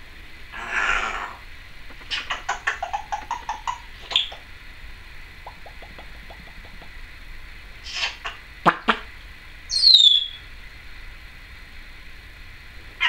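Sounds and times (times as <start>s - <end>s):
parrot hissing: 0.0s - 4.5s, 7.8s - 9.1s
parrot squeak: 4.0s - 4.4s, 7.9s - 8.3s, 9.7s - 10.4s
parrot clicks: 5.4s - 7.0s.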